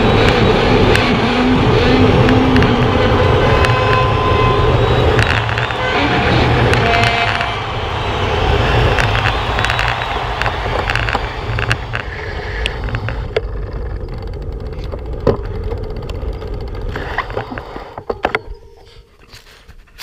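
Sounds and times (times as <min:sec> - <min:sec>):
wind and road noise: 0:00.0 - 0:20.0
bike clicks and knocks: 0:05.0 - 0:05.8, 0:06.6 - 0:07.6, 0:08.8 - 0:20.0.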